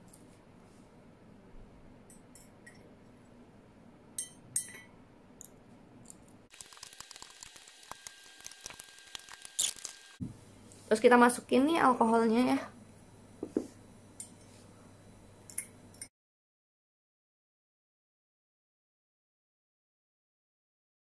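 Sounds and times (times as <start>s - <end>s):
glass clinking: 2.1s - 2.9s, 4.2s - 4.9s.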